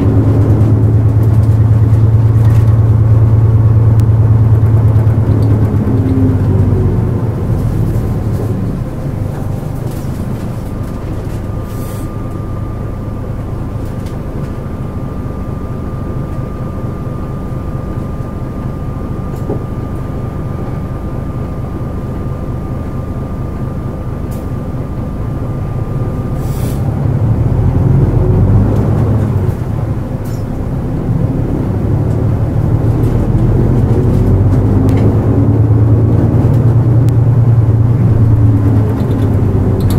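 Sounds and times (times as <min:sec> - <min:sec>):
faint steady whine: 0:00.0 - 0:28.4
bus diesel engine: 0:00.0 - 0:39.9.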